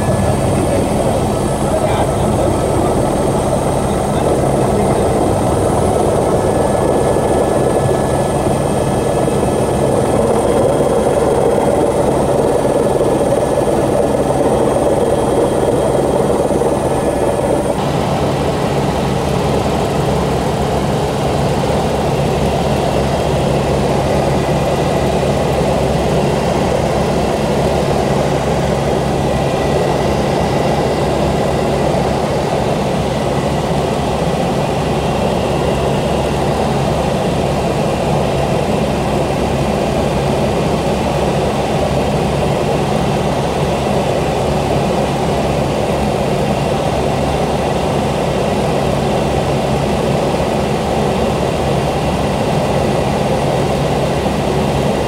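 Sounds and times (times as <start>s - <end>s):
helicopter engine and rotor drone: 0.0s - 55.0s.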